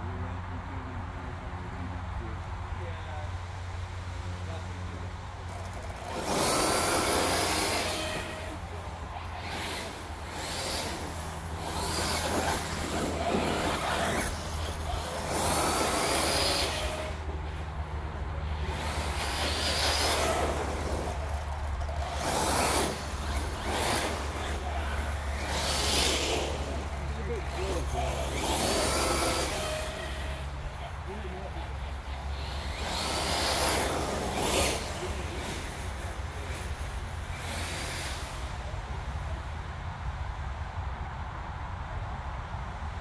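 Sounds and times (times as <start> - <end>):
rc buggy electric motor whining: 5.4 - 39.5.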